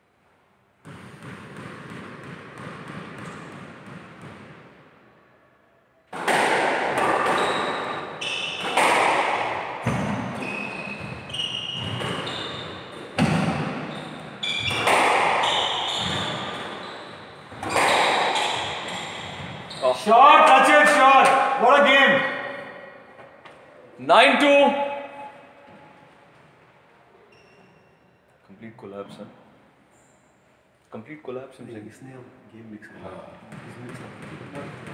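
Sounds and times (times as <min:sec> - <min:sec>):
squash ball hitting rackets and walls: 0:00.7 - 0:05.3, 0:06.1 - 0:23.8, 0:33.4 - 0:34.9
shoe squeaks on court: 0:07.2 - 0:08.9, 0:09.9 - 0:20.0, 0:27.3 - 0:28.1.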